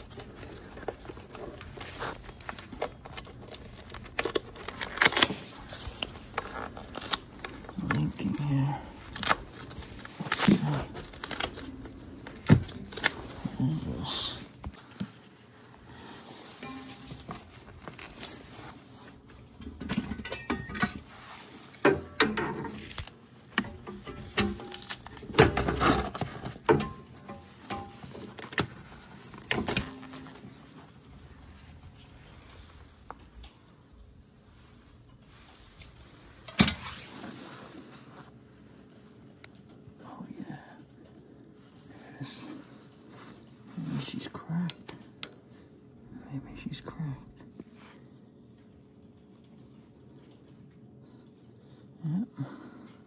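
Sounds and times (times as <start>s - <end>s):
handling clicks and knocks: 0.0s - 8.2s.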